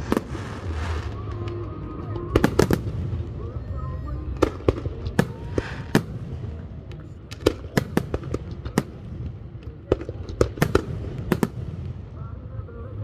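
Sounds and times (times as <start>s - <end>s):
fireworks bangs: 0.0s - 3.6s, 4.3s - 12.3s
low rumble: 0.0s - 13.0s.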